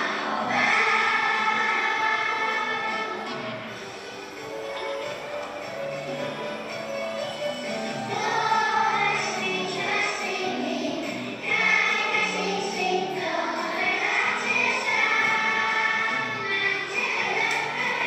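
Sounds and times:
children singing in unison: 0.0 - 3.8, 8.1 - 18.0
musical accompaniment: 0.0 - 18.0.

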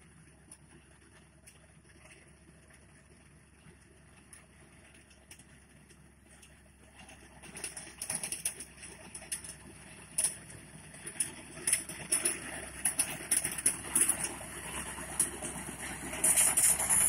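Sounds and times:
low engine hum: 0.0 - 17.0
reaper cutting stalks crackling: 11.1 - 17.0.

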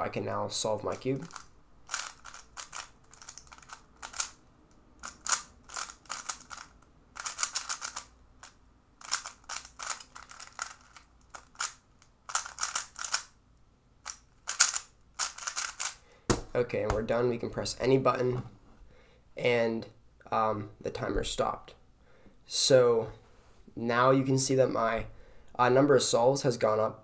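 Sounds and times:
puzzle cube plastic clicking: 1.2 - 13.3, 14.0 - 16.0.

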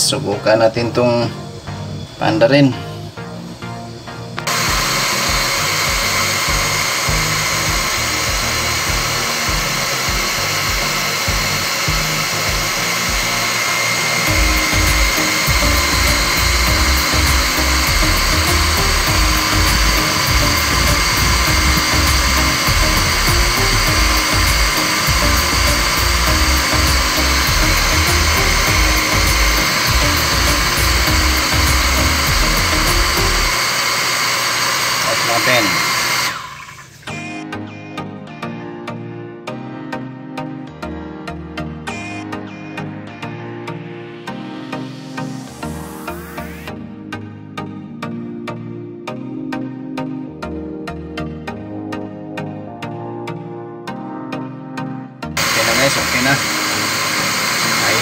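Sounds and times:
background music: 0.0 - 58.0
water pump motor whirring: 3.9 - 37.1, 55.4 - 58.0.

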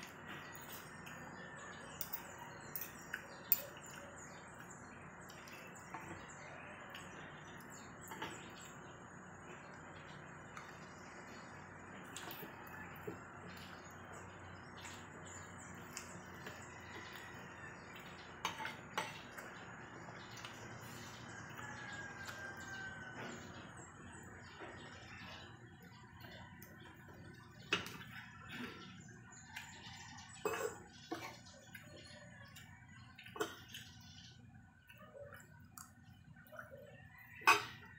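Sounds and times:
cutlery clinking on a plate: 18.4 - 19.5, 37.4 - 37.9.

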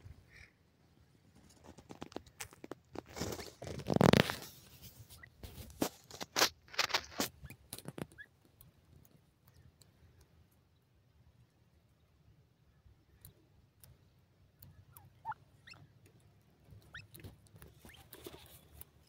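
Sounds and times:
birds scratching in dry soil: 1.2 - 9.7, 14.6 - 19.0.

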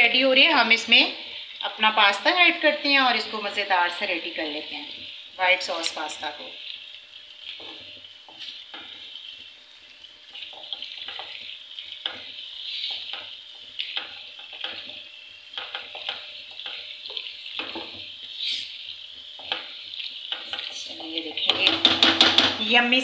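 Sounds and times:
frying sizzle: 0.0 - 23.0
spoon scraping a pan: 7.4 - 9.5, 10.3 - 22.5.

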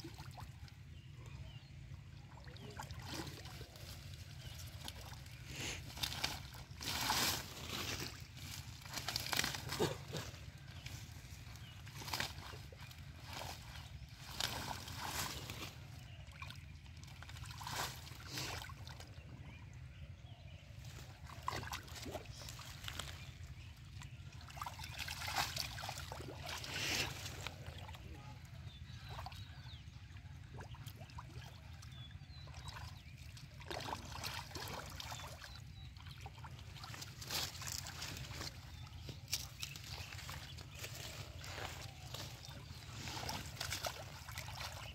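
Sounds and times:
hands splashing in muddy water: 24.0 - 28.0, 32.4 - 44.9.

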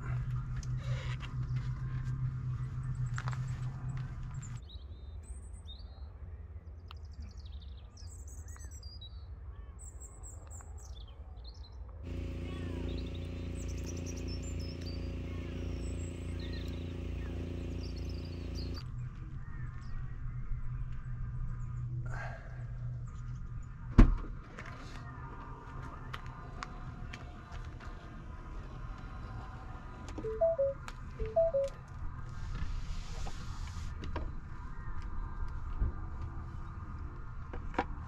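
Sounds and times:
small birds chirping: 12.1 - 18.8
steady low hum: 12.1 - 18.8.

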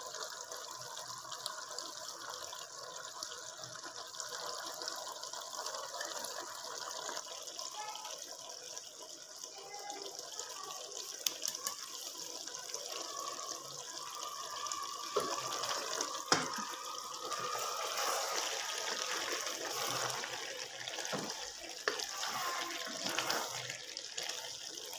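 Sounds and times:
curry sizzling in a metal pan: 0.0 - 24.9
spatula knocking and scraping pan: 16.3 - 16.7.

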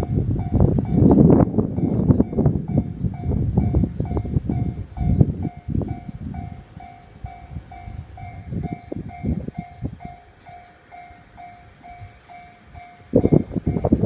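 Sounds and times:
level crossing bell ringing: 4.6 - 14.0.

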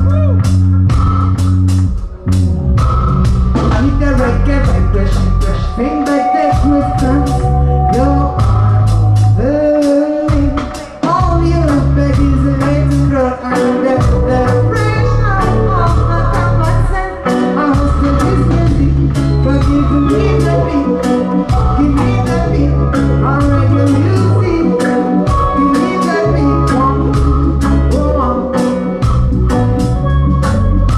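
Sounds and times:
drums: 0.0 - 30.9
electric bass line: 0.0 - 30.9
guitar: 0.0 - 30.9
woman singing: 3.8 - 8.6, 9.3 - 29.0.

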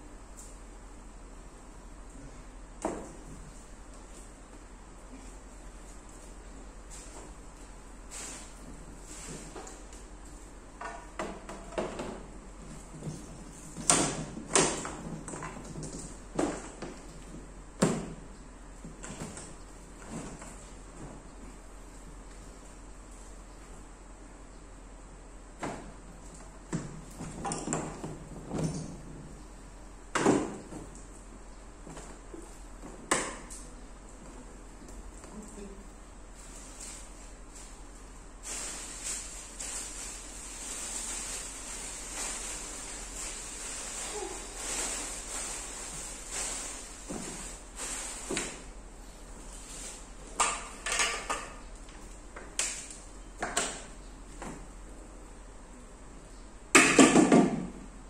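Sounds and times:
plastic packaging rustling: 36.4 - 48.7.

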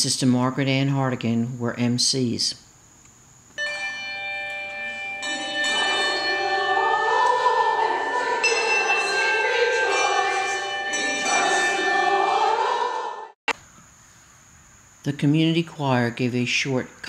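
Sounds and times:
group of voices singing: 5.2 - 13.4.

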